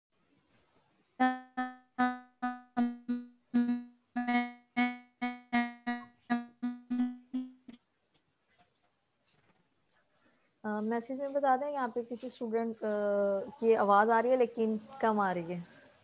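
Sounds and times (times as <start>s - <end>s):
repeated keyboard note: 1.2s - 7.8s.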